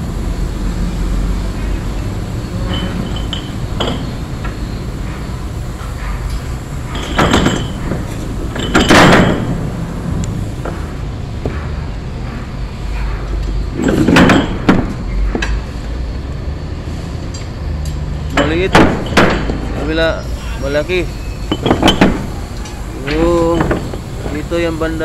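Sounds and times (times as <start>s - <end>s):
low machinery rumble: 0.0s - 25.0s
loud short clattering: 6.9s - 9.8s, 13.8s - 15.6s, 21.5s - 22.4s.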